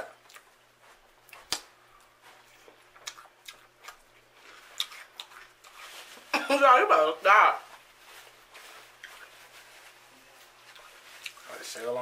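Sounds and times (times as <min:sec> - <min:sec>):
chewing mouth sounds: 0:02.4 - 0:05.9.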